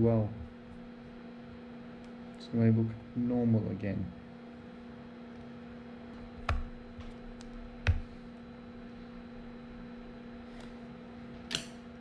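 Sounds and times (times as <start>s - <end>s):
steady electrical hum: 0.0s - 12.0s.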